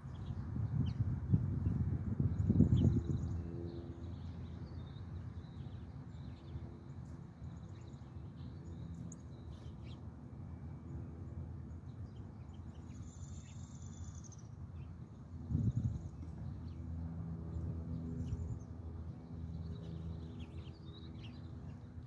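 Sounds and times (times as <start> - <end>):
songbird chirps and calls: 11.7 - 16.7.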